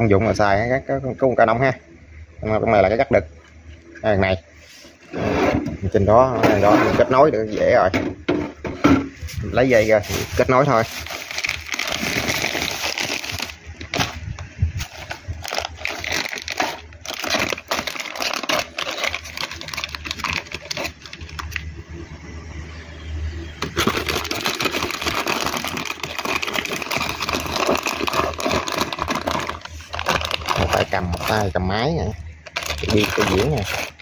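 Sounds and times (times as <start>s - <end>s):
plastic packaging crinkling: 9.7s - 14.2s, 14.8s - 21.7s, 23.6s - 31.6s, 32.3s - 34.0s.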